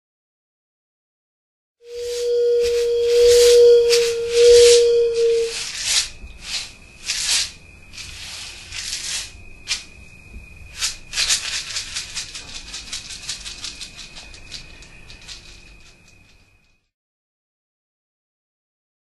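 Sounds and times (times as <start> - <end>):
steady held tone: 1.9 - 5.7
maraca rattle shaking: 1.9 - 16.8.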